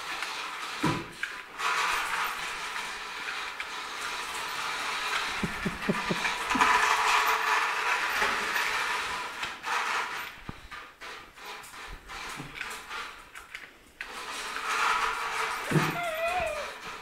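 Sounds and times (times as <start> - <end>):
toy car motor whirring: 11.1 - 17.0.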